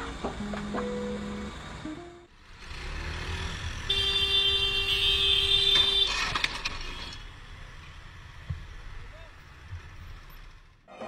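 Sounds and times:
low traffic rumble: 0.0 - 11.0
vehicle horn: 3.8 - 7.2.

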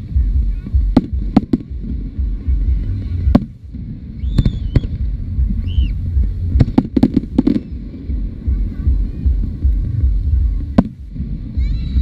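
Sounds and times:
low rumble of explosions: 0.0 - 12.0
firework bangs: 0.4 - 12.0
firework whistles: 3.9 - 6.1.

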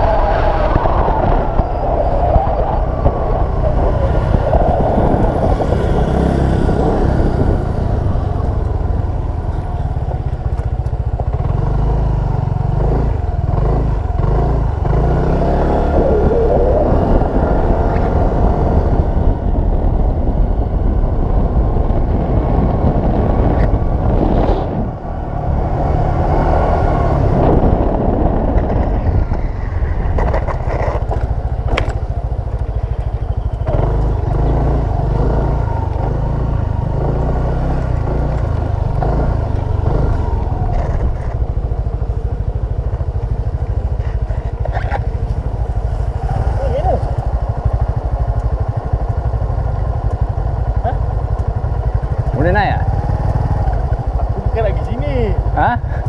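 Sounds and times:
wind rumble on microphone: 0.0 - 56.0
scooter engine running: 0.9 - 56.0.

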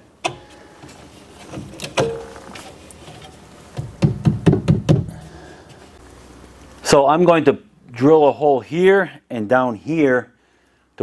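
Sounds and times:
clamp clicking shut: 1.6 - 2.5.

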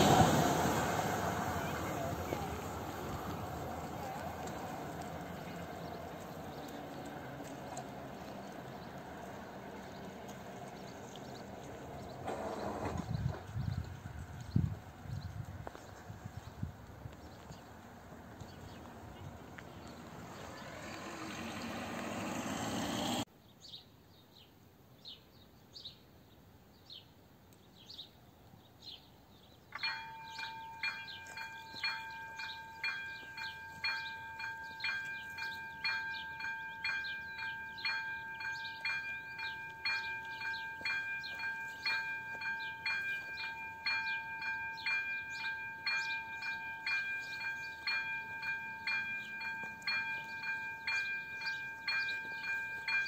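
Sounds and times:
car passing: 0.0 - 13.5, 17.6 - 23.3
level crossing warning bell: 29.8 - 53.0.

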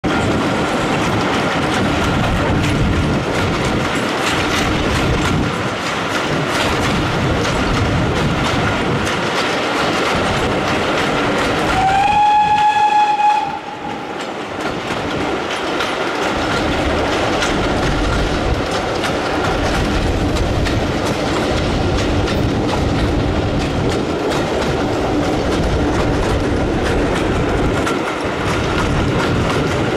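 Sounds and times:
train wheels clickety-clack: 0.0 - 29.9
locomotive whistle: 11.7 - 14.2.

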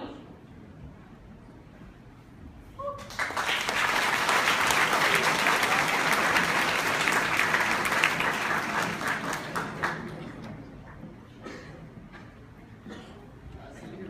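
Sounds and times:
crowd cheering: 3.0 - 10.2
audience applause: 3.0 - 10.8.

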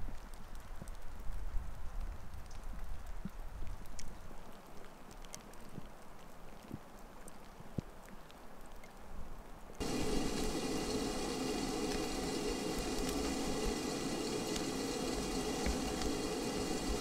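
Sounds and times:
small ticks: 2.0 - 9.0
kettle water heating hiss: 9.8 - 17.0.

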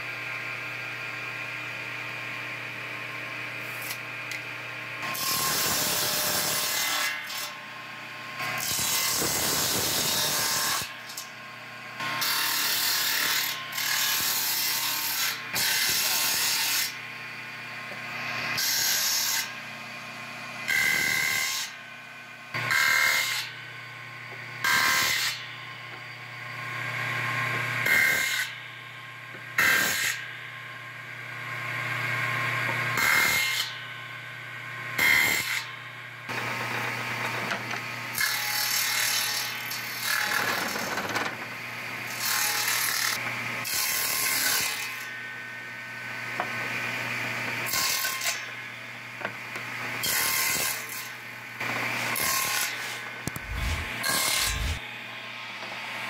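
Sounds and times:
circular blade cutting wood: 8.4 - 11.3, 50.0 - 54.9
table saw motor humming: 53.2 - 54.8.

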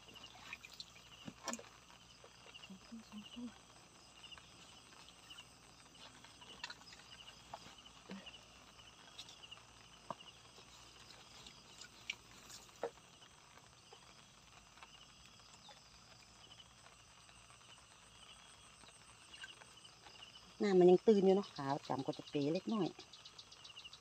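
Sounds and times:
insect chirping trills: 0.0 - 24.0.

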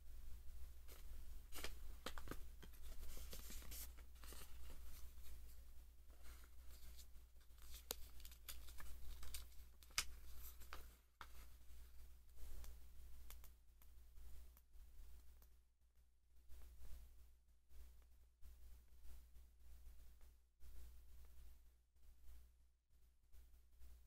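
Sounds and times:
paper and cardboard rustling: 0.9 - 11.5.

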